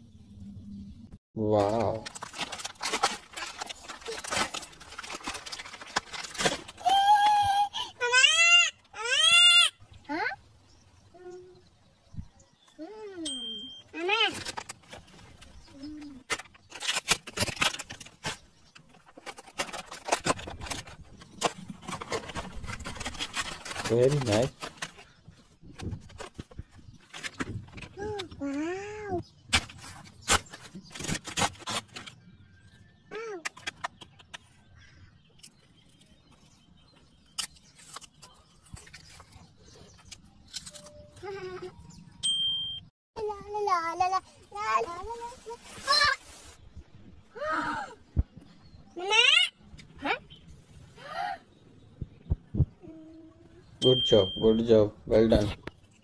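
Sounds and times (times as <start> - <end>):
plastic packaging crinkling: 1.7 - 7.4, 16.3 - 25.2.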